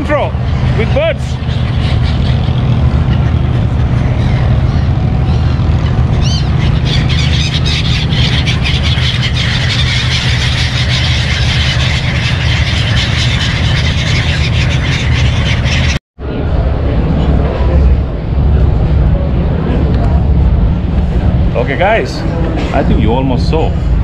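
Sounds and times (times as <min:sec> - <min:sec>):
low engine hum: 0:00.0 - 0:24.0
gull call: 0:01.3 - 0:16.0.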